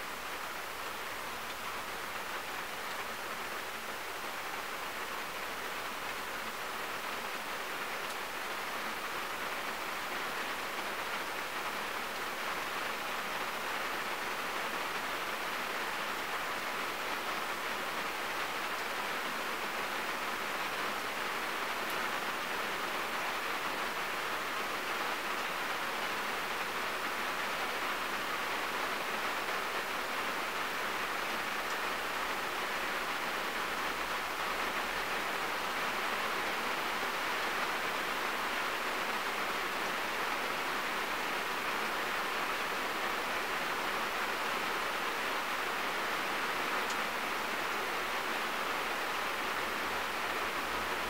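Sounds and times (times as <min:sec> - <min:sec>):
rain falling on a car: 0:00.0 - 0:51.0.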